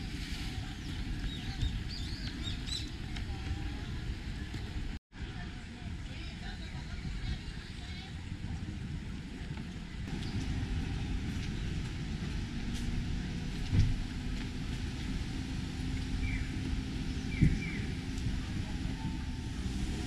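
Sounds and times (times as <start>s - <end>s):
low rumble: 0.0s - 20.0s.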